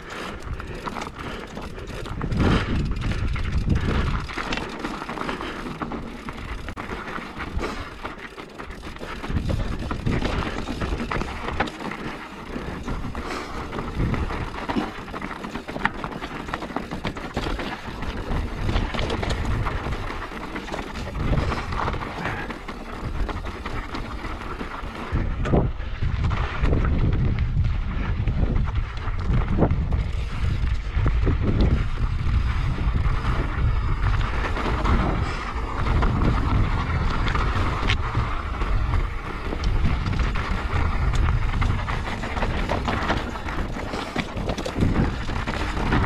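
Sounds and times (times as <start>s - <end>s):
wind buffeting microphone: 0.0s - 6.8s, 8.7s - 15.6s, 16.5s - 46.0s
bike rattling and clattering: 0.0s - 46.0s
tyres crunching over loose stones: 0.0s - 46.0s.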